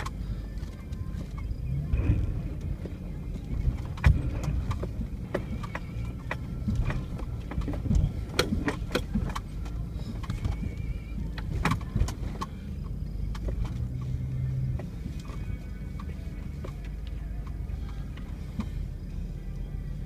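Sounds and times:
vehicle knocks and rattles: 0.0s - 14.0s
vehicle engine rumbling: 0.0s - 20.0s.

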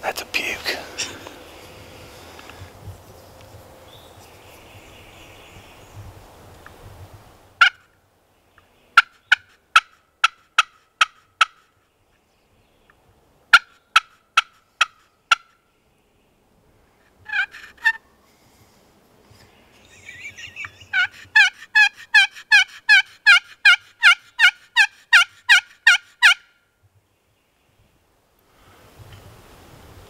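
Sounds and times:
turkey call yelps: 17.3s - 18.0s, 20.2s - 26.5s.

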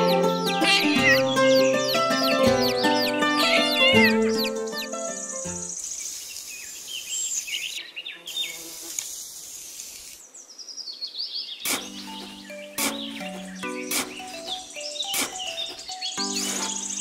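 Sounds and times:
background music: 0.0s - 5.7s, 11.9s - 17.0s
bird chirps: 0.0s - 8.7s, 9.6s - 17.0s
insects buzzing: 0.0s - 10.8s, 11.6s - 17.0s
sharp click: 11.7s - 13.2s, 13.9s - 17.0s.

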